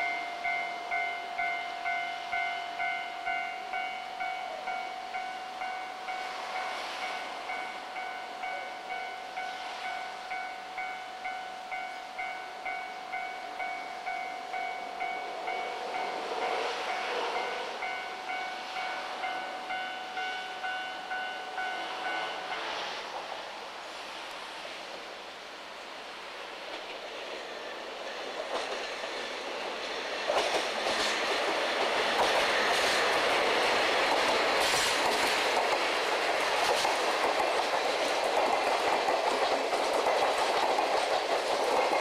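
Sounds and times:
level crossing warning bell: 0.0s - 22.8s
diesel locomotive approaching: 0.0s - 42.0s.

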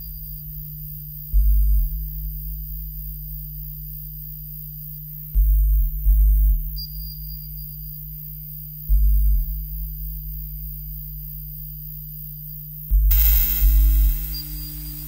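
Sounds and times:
deep bass pulses: 12.9s - 15.0s
electronic drone: 13.1s - 15.0s.

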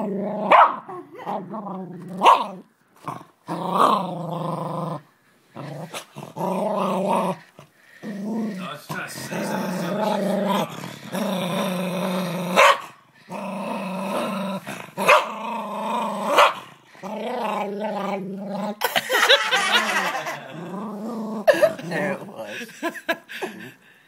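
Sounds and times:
small dog growling: 0.0s - 12.6s, 13.3s - 18.8s, 19.7s - 22.6s
dog barking: 0.5s - 0.9s, 2.2s - 2.5s, 12.6s - 13.0s, 15.0s - 15.3s, 16.4s - 16.6s.

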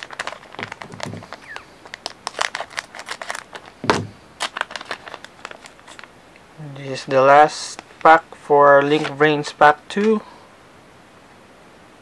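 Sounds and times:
foil wrapper crinkling: 0.0s - 6.2s, 7.0s - 9.2s.

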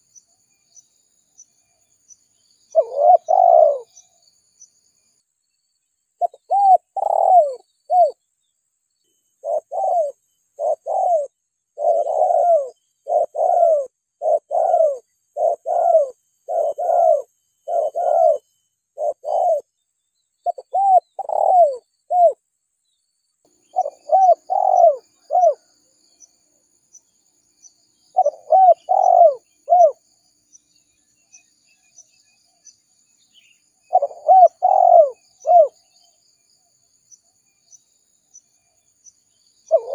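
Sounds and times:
dove cooing: 2.7s - 4.0s, 6.2s - 8.2s, 9.4s - 18.4s, 19.0s - 19.7s, 20.4s - 22.4s, 23.7s - 25.7s, 28.1s - 30.0s, 33.9s - 35.8s, 39.6s - 39.9s.

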